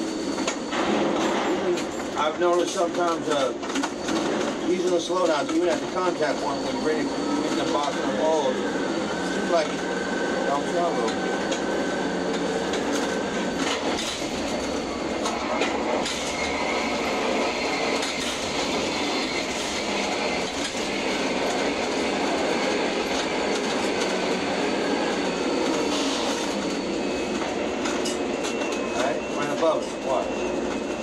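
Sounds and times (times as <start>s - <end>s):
crane machinery rattle and rumble: 0.0s - 6.1s, 11.0s - 29.0s.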